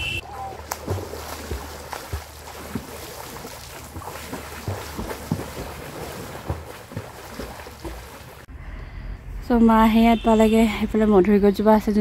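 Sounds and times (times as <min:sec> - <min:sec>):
swimmer splashing in water: 0:00.2 - 0:08.4.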